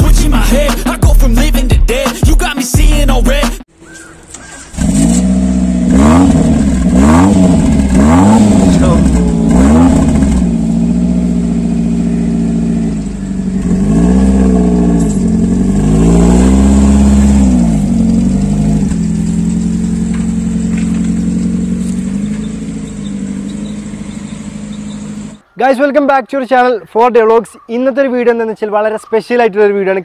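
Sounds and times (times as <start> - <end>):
car engine revving and idling: 4.7 - 25.4.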